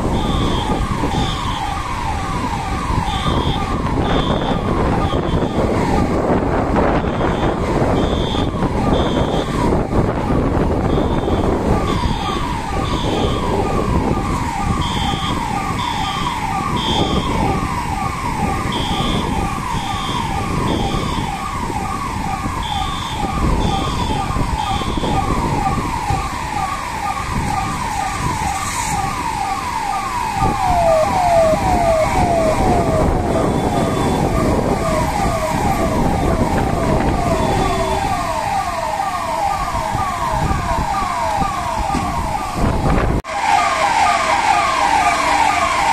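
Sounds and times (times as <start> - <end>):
electronic siren yelping: 0.0 - 45.9
steady rushing noise: 19.2 - 45.9.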